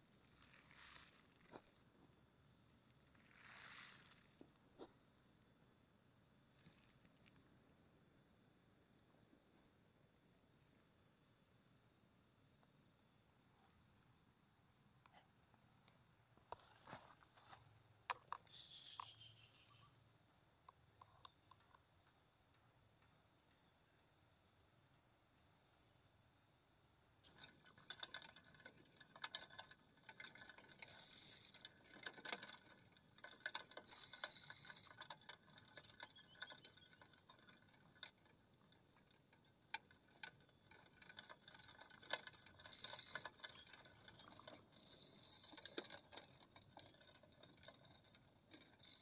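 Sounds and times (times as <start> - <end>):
cricket trilling: 0.0 - 0.6, 3.2 - 4.8, 5.9 - 8.1, 13.7 - 14.2, 30.8 - 31.5, 33.9 - 34.9, 42.7 - 43.2, 44.8 - 45.8, 48.8 - 49.0
faint ticking and scratching: 27.2 - 49.0.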